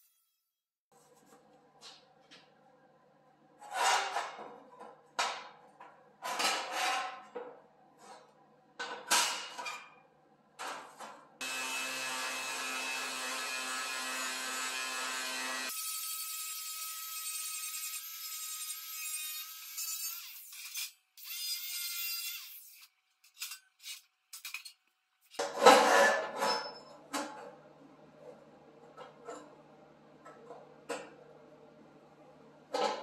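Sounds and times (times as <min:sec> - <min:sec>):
angle grinder cutting steel: 0:11.4 - 0:24.6
sheet steel scraping on workbench: 0:25.4 - 0:26.9.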